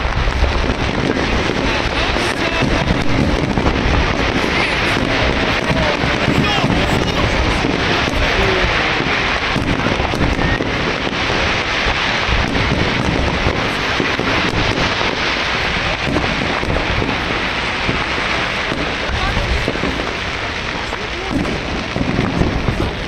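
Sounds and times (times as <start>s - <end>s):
deep fireworks booms: 0.0s - 23.0s
fireworks crackling and popping: 0.0s - 23.0s.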